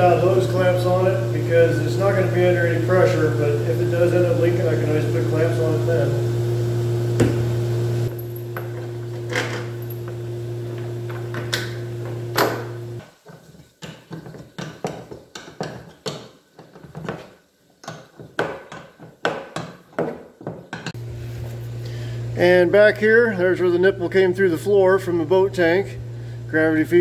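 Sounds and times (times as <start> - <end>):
steady hum: 0.0 - 13.0, 21.0 - 27.0
tool knocks and clicks: 13.4 - 21.0.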